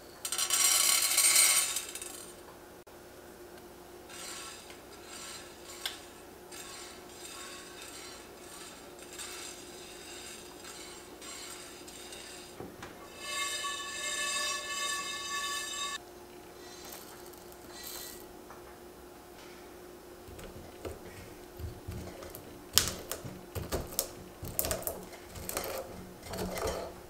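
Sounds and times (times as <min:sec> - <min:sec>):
peppercorns clicking spread by hand: 0:20.3 - 0:27.0
peppercorns rattling into a pan: 0:20.3 - 0:27.0.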